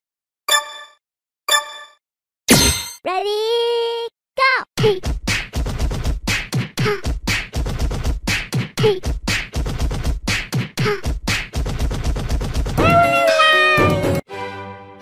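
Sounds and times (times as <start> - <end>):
beatbox percussive hits: 4.8 - 13.1.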